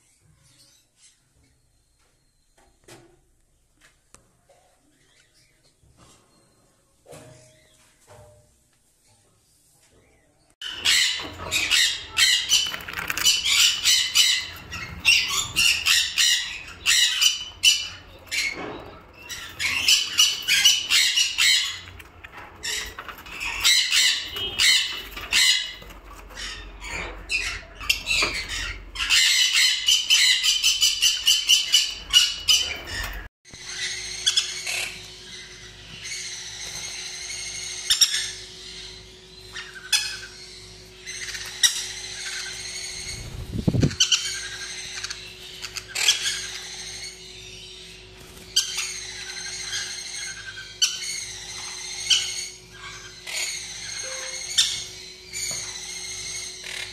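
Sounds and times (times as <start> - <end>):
scattered bird calls: 10.0 - 56.9
parrots screeching: 10.6 - 47.8, 48.5 - 56.9
steady low hum: 10.6 - 56.9.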